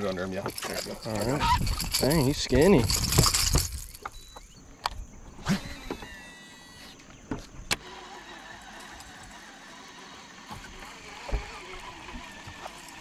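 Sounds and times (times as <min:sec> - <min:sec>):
fishing gear knocks and clicks: 0:00.2 - 0:05.0.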